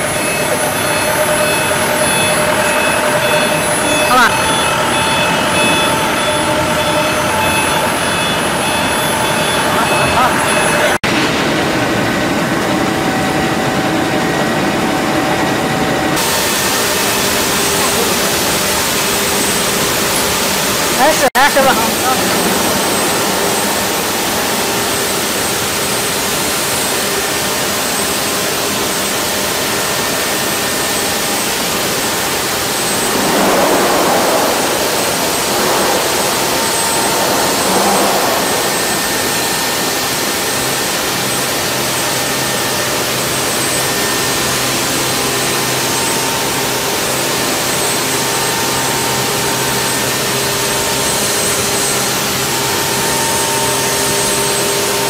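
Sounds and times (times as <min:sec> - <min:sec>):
faint high whine: 0:00.0 - 0:13.6, 0:16.2 - 0:44.7
industrial machinery hum: 0:00.0 - 0:45.7.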